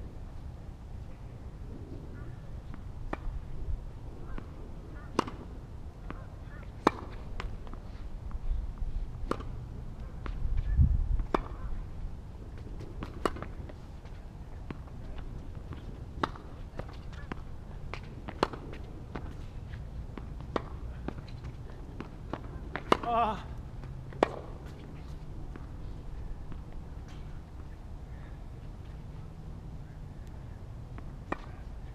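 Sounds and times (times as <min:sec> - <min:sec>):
tennis ball bouncing: 0:02.6 - 0:03.5, 0:04.2 - 0:08.4, 0:09.2 - 0:11.7, 0:12.6 - 0:25.8, 0:30.9 - 0:31.7
racket striking tennis ball: 0:04.2 - 0:07.8, 0:09.2 - 0:10.4, 0:11.2 - 0:11.7, 0:12.6 - 0:13.7, 0:15.7 - 0:19.4, 0:20.1 - 0:24.8.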